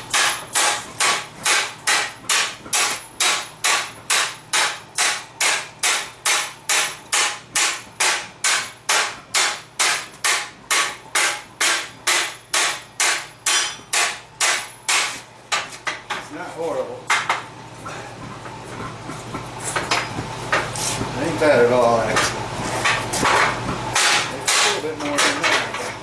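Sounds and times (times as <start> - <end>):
hammer striking hot steel bar: 0.0 - 16.2, 22.2 - 25.6.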